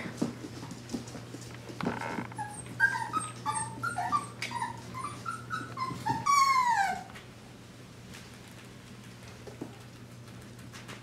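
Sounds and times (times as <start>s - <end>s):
puppy whimpering and whining: 2.3s - 7.2s.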